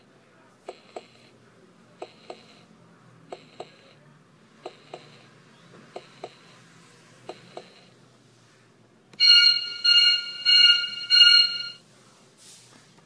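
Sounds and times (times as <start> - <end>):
ringing electronic tone bursts: 9.2 - 11.8.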